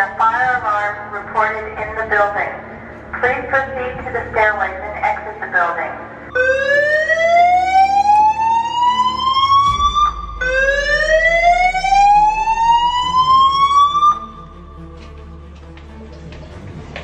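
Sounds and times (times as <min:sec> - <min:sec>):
fire alarm rising sweep tone: 0:06.3 - 0:14.9.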